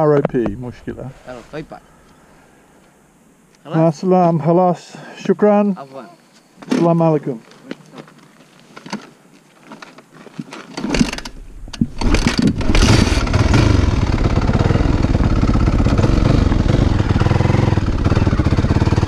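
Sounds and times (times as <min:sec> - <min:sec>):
motorcycle engine running: 0:12.5 - 0:19.0.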